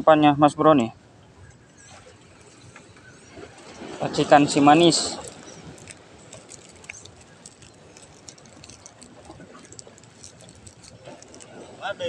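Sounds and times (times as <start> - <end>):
plastic bag rustling and clicking: 4.7 - 11.6.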